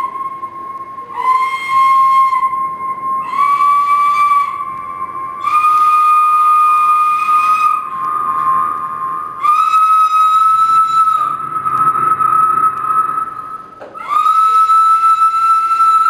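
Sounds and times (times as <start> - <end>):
cane flute long high notes: 0.0 - 16.0
continuous steady tone: 0.0 - 16.0.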